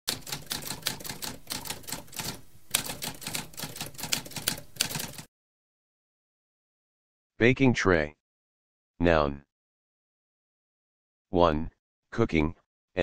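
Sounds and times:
typewriter keys clattering: 0.1s - 5.3s.

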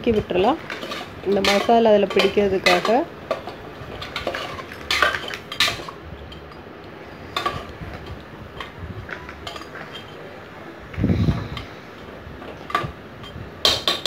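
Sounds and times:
ladle scraping metal pot: 0.2s - 6.4s.

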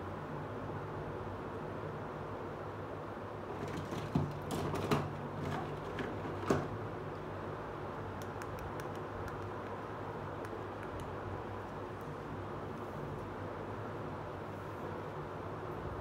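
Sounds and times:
steady low hum: 5.2s - 16.0s.

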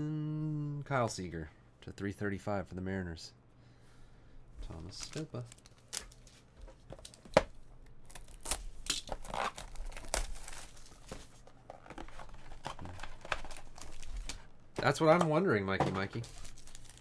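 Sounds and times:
plastic wrap crinkling: 4.7s - 7.2s, 8.0s - 15.0s, 16.0s - 17.0s.

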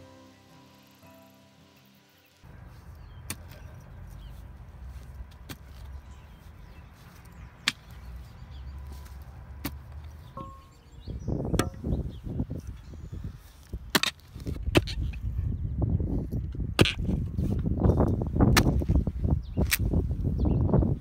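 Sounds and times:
mattock striking soil and roots: 2.7s - 10.8s, 13.4s - 15.2s, 18.4s - 19.0s.

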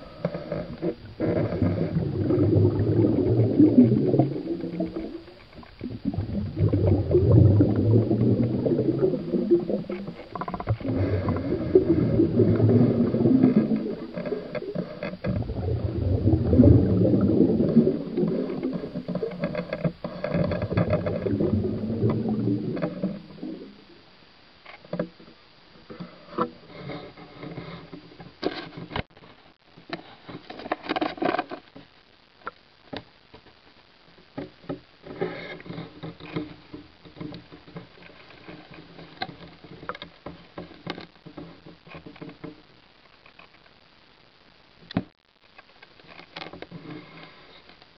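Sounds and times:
water churning underwater: 0.0s - 24.2s
faint humming tones: 0.0s - 24.6s.

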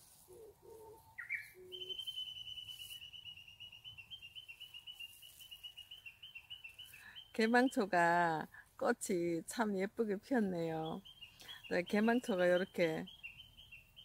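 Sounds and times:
rising bird chirp: 0.3s - 7.8s, 10.8s - 14.0s
bird trill: 1.1s - 7.8s, 10.8s - 14.0s.

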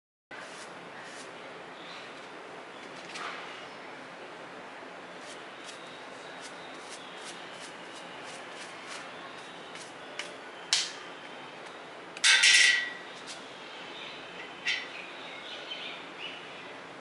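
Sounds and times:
brush scrubbing fur: 0.4s - 1.4s, 5.2s - 10.0s.

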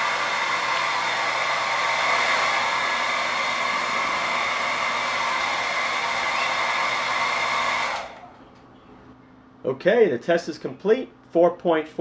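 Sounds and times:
hair dryer running: 0.0s - 8.4s.

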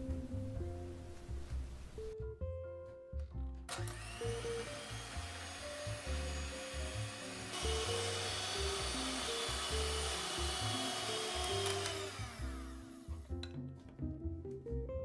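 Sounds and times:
background music: 0.0s - 15.0s
electric hand mixer whirring: 3.7s - 13.3s.

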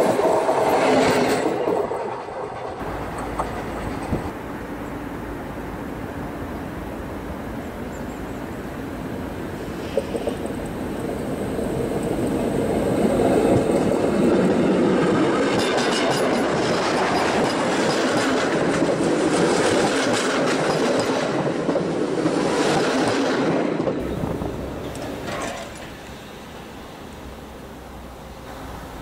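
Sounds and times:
wheels clicking over rail joints: 0.0s - 4.4s, 9.8s - 26.4s
train wheels rumbling on rails: 0.0s - 29.0s.

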